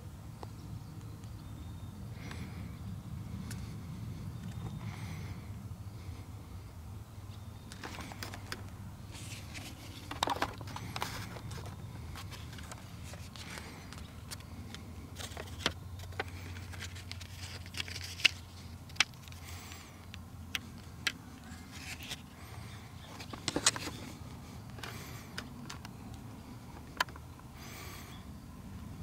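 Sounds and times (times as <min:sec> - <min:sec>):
steady low hum: 0:00.0 - 0:29.0
handling rustles: 0:07.7 - 0:19.9, 0:20.6 - 0:26.0.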